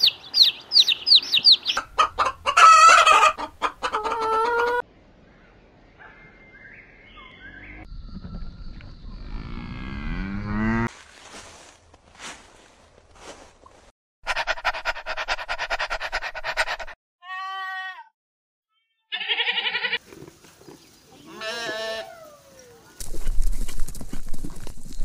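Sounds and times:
low wind rumble: 0:07.4 - 0:10.4
goats bleating: 0:19.1 - 0:20.0, 0:21.2 - 0:22.2.

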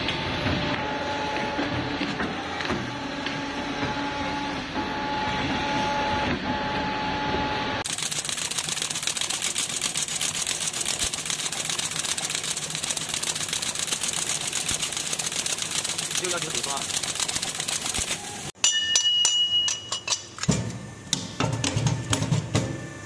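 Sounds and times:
machine hum with held tone: 0:00.0 - 0:23.0
rapid machine clatter of clicks: 0:07.8 - 0:18.2.

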